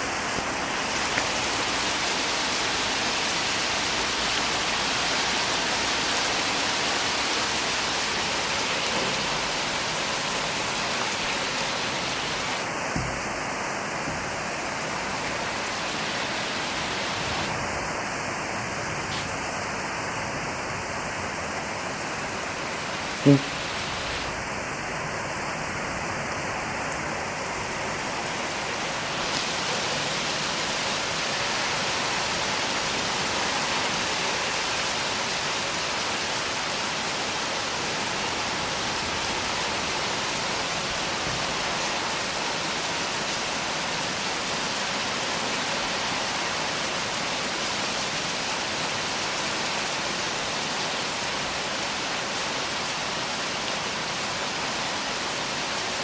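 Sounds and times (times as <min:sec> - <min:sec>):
heavy rain on trees: 0:00.0 - 0:56.0.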